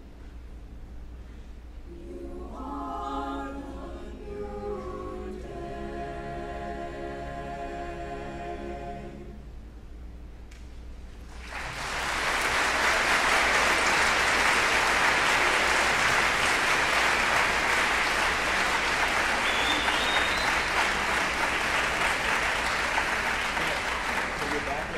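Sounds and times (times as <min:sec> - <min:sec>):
choir singing a chord: 0:01.9 - 0:09.5
audience applause: 0:11.3 - 0:24.9.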